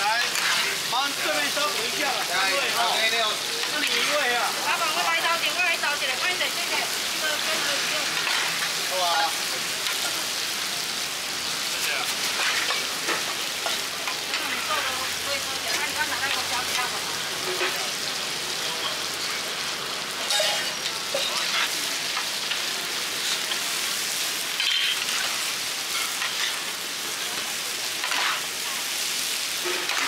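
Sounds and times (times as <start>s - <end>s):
rice sizzling in a wok: 0.0s - 30.0s
metal spatula scraping a wok: 0.1s - 1.6s, 3.6s - 4.4s, 7.5s - 8.7s, 12.2s - 14.8s, 24.6s - 26.7s, 28.0s - 28.9s, 29.5s - 30.0s.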